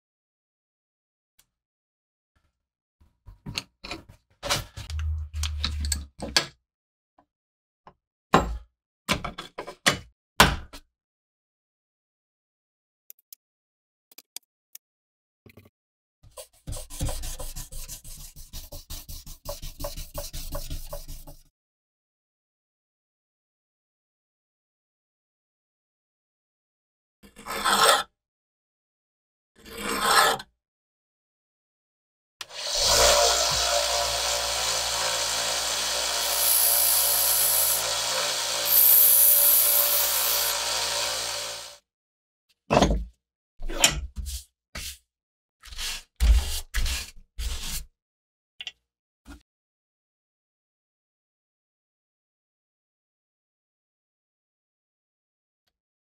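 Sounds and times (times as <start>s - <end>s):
sandpaper rubbing steel blade: 16.4s - 21.5s, 32.5s - 41.7s.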